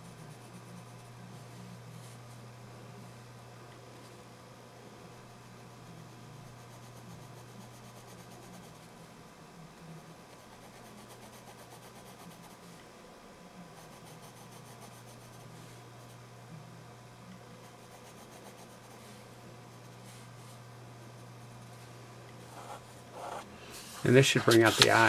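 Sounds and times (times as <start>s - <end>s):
pencil scratching on paper: 0.0s - 1.2s, 6.5s - 8.9s, 10.4s - 12.6s, 13.8s - 16.2s, 17.6s - 19.0s
steady low hum: 0.0s - 25.0s.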